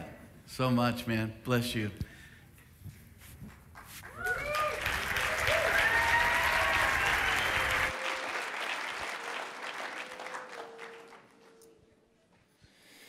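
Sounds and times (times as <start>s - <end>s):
audience applauding: 3.7s - 11.8s
cheering: 4.0s - 11.4s.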